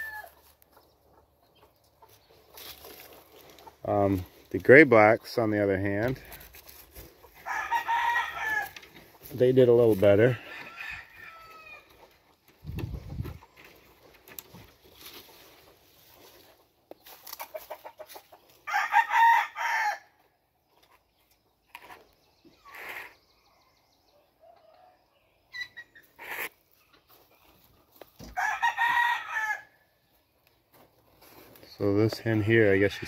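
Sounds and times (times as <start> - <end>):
rooster crowing: 0.0 - 0.4, 7.4 - 8.8, 10.3 - 11.9, 18.6 - 20.1, 28.4 - 29.8.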